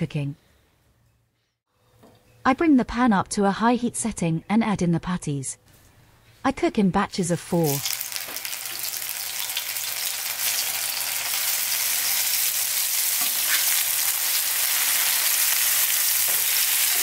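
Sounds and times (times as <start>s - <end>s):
fritters sizzling in hot oil: 7.6s - 17.0s.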